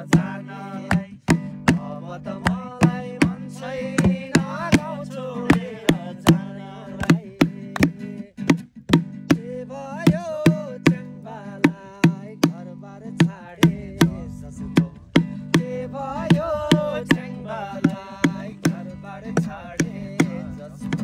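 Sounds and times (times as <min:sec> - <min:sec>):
person singing: 0:00.0 - 0:08.6, 0:09.3 - 0:21.0
strummed acoustic guitar: 0:00.0 - 0:21.0
bucket drum slaps: 0:00.9 - 0:09.5, 0:10.1 - 0:12.6, 0:13.2 - 0:21.0.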